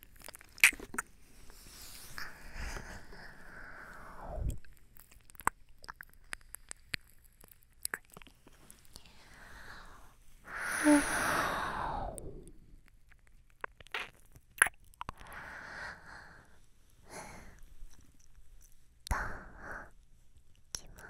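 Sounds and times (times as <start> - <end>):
wet mouth clicks: 0.2 - 1.1, 4.4 - 9.1, 12.1 - 15.4
breathing close to microphone: 1.4 - 4.7, 9.0 - 12.8, 15.1 - 17.9, 19.1 - 19.9.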